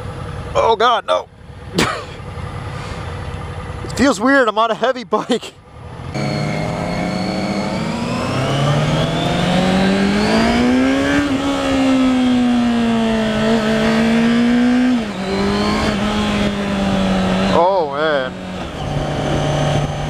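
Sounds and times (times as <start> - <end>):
motorcycle engine revving: 5.7 - 20.0
wind rushing over microphone: 8.3 - 17.6, 18.3 - 20.0.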